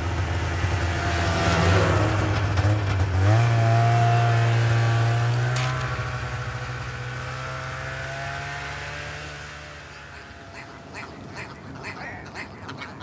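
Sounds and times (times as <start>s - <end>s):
snowmobile engine running: 0.0s - 13.0s
bird short repeated calls: 9.8s - 13.0s.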